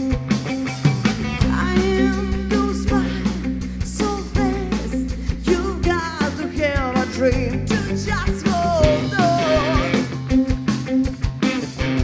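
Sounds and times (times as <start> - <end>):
bass guitar: 0.0 - 12.0
drum kit: 0.0 - 12.0
electric guitar: 0.0 - 12.0
woman singing lead: 1.3 - 10.4.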